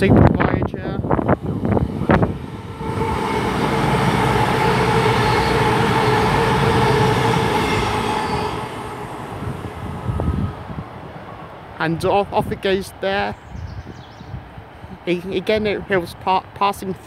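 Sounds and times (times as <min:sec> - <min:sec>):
train passing at speed: 0:00.0 - 0:13.2.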